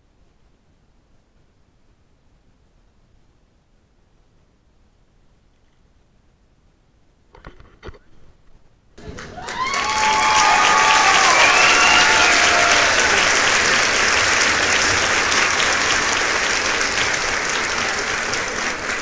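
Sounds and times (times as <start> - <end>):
crowd applauding and cheering: 9.0 - 19.0
voices whooping: 9.2 - 13.9.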